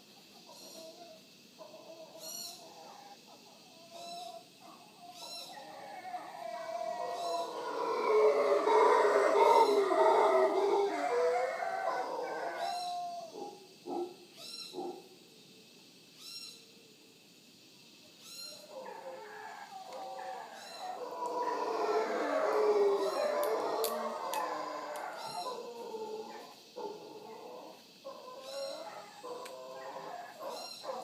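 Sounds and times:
howler monkeys roaring: 4.8s - 14.1s, 18.7s - 31.0s.

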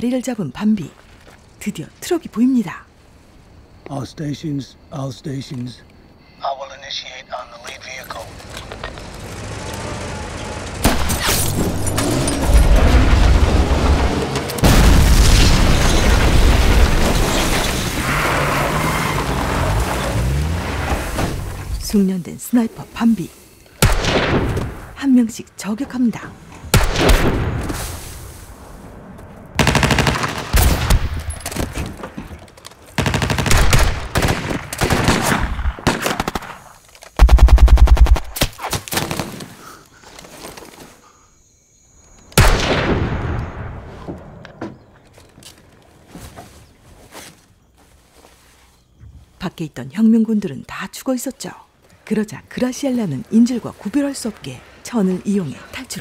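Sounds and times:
rifle shot: 23.8s - 24.6s, 26.7s - 27.8s, 33.0s - 36.6s, 42.4s - 43.8s
single gunshots: 23.8s - 24.9s, 26.7s - 27.9s, 33.0s - 39.4s, 42.4s - 43.9s.

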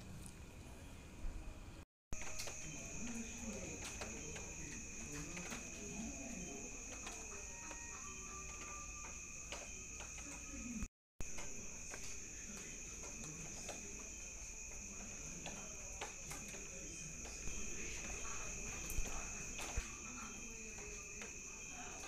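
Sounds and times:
crickets trilling: 2.2s - 22.0s.

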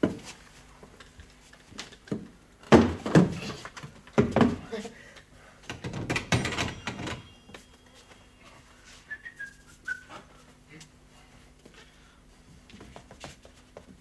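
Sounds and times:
faint steady hum: 0.0s - 14.0s
clatter of knocks: 5.7s - 7.3s
person whistling short notes: 8.8s - 10.2s.

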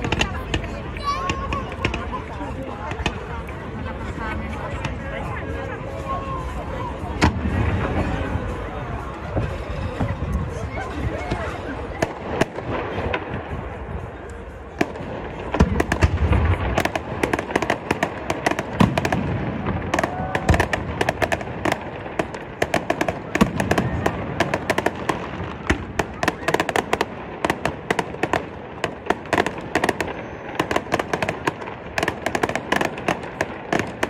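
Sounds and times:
fireworks crackling pops and bangs: 0.0s - 5.4s, 11.3s - 34.0s
deep fireworks booms: 14.8s - 34.0s.

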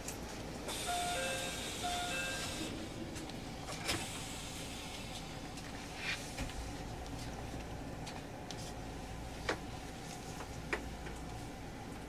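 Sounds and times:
two-tone electronic chime: 0.9s - 2.7s.

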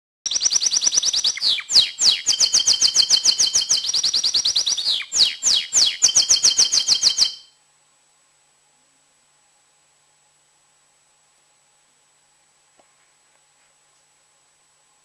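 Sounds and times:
canary singing trills: 0.3s - 7.5s.

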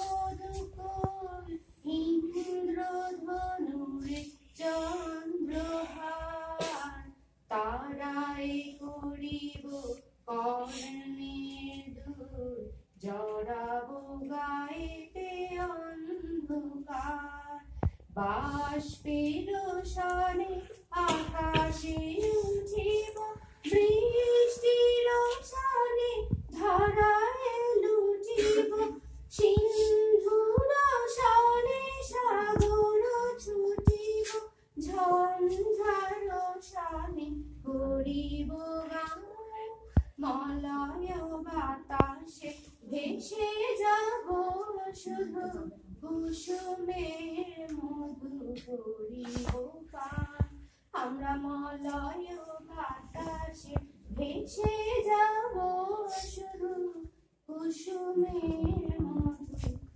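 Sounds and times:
women singing together: 0.0s - 59.9s.

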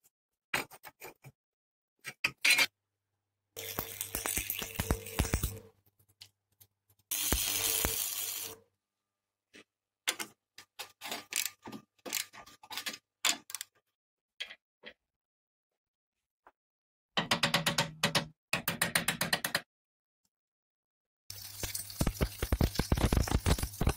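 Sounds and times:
arc welding crackling: 3.6s - 5.6s, 7.1s - 8.6s, 21.4s - 23.9s
metal parts clicking and knocking: 10.1s - 13.8s.

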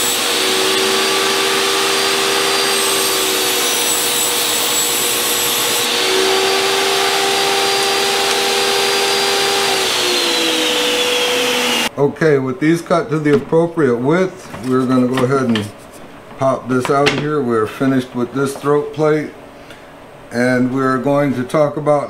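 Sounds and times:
saw blade spinning down: 0.0s - 11.9s
table saw cutting plywood: 0.0s - 11.9s.

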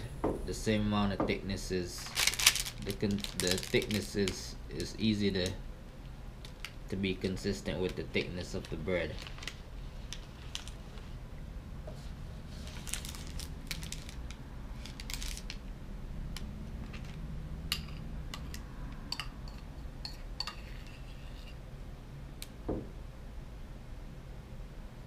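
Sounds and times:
metal spoon scraping bowl: 19.4s - 21.6s.

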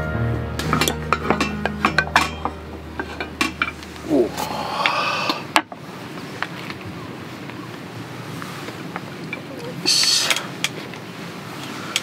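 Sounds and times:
metal sandwich maker clanking: 0.6s - 3.8s.

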